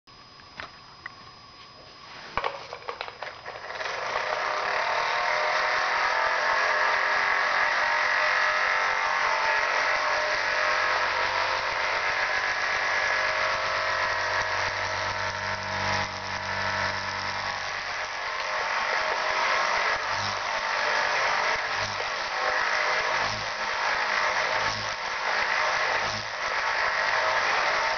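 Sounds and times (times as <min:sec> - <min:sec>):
toy motor and gears whirring: 0:02.4 - 0:27.9
deeper hum: 0:09.9 - 0:20.8.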